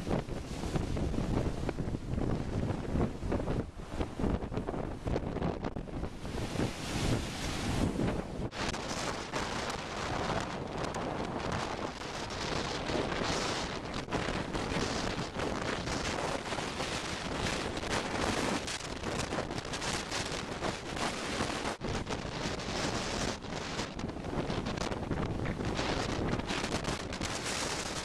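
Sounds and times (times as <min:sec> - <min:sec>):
wind buffeting microphone: 0:00.0 - 0:28.0
surf breaking on rocks: 0:06.1 - 0:20.2.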